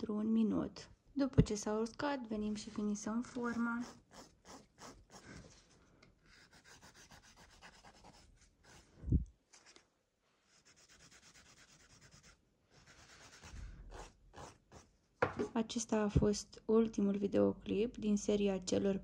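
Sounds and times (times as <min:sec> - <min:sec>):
nail file rasping: 0:03.4 - 0:05.3, 0:06.4 - 0:08.8, 0:10.7 - 0:14.9.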